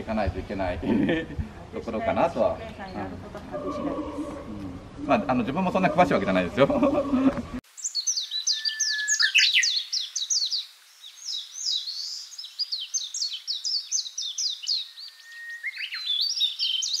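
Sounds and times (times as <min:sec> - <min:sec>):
songbirds chirping: 0:00.0 - 0:17.0
bird whistled notes: 0:07.9 - 0:10.4.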